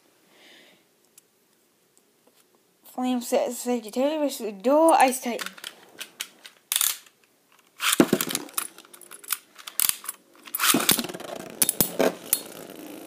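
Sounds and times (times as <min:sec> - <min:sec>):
spinning tops scraping plastic bowl: 0:10.4 - 0:13.0.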